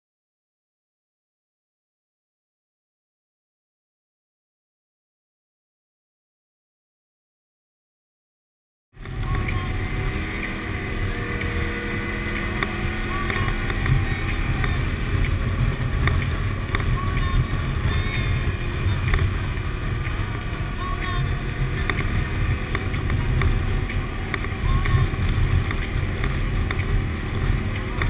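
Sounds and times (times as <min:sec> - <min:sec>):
atv engine running: 0:09.0 - 0:28.0
wind rushing over microphone: 0:09.0 - 0:28.0.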